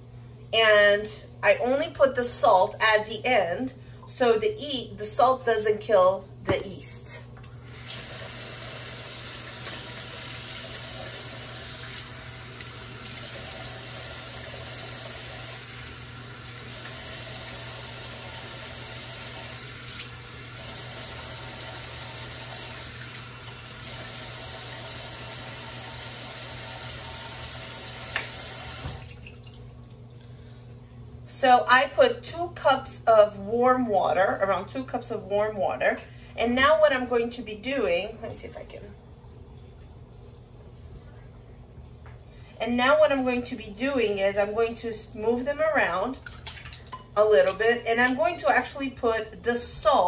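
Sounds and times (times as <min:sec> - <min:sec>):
tap water filling a cup: 0:28.0 - 0:30.2.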